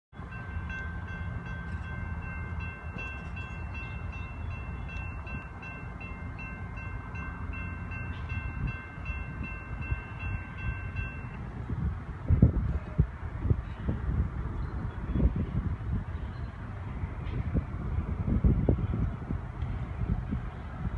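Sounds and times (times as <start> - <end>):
crossing bell ringing: 0.2 - 11.5
freight train rumbling: 0.2 - 20.9.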